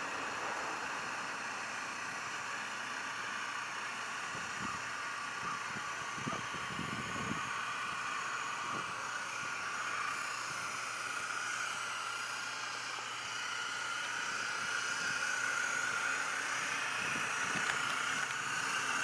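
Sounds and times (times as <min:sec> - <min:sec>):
model boat motor whine: 0:00.0 - 0:19.0.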